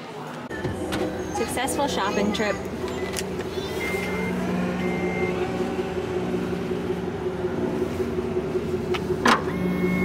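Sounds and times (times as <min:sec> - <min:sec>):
liftgate motor hum: 0:00.5 - 0:10.0
short high warning beeps: 0:02.9 - 0:05.6.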